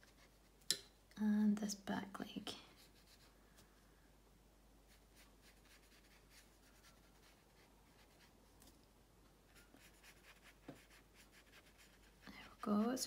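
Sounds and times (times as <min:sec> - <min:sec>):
paintbrush strokes on paper: 0:00.0 - 0:00.6, 0:02.6 - 0:03.8, 0:04.8 - 0:08.5, 0:09.5 - 0:13.0.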